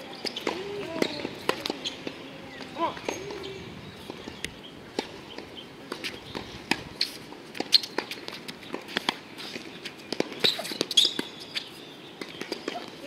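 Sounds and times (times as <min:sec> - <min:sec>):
players' footsteps on hard court: 0:00.0 - 0:13.0
tennis ball bounced and struck: 0:00.2 - 0:03.5.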